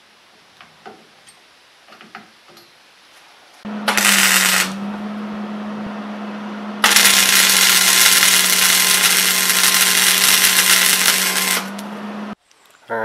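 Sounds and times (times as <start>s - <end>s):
arc welding crackle: 3.9s - 4.8s, 6.8s - 11.9s.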